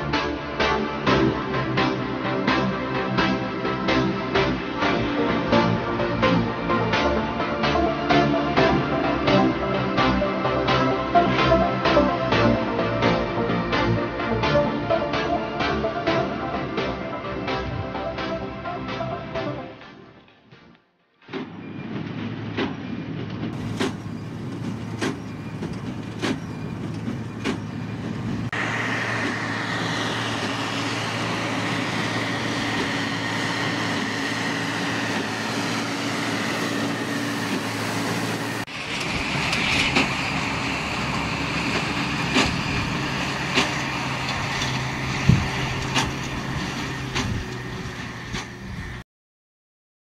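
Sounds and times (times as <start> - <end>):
wheel loader engine running: 21.6 - 49.0
tractor engine under load: 23.4 - 49.0.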